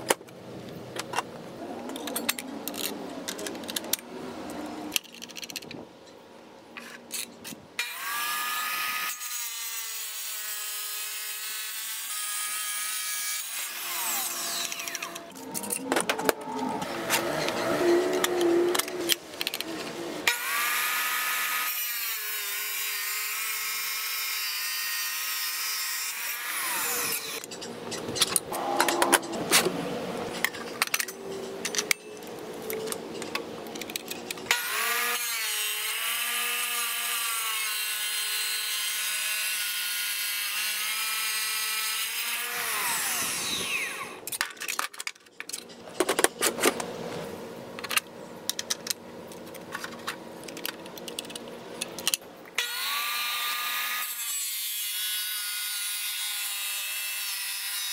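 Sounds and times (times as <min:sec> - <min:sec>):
metallic clicks and clanks: 0:27.4 - 0:29.7, 0:30.3 - 0:34.5
tile saw motor whining: 0:34.5 - 0:44.3.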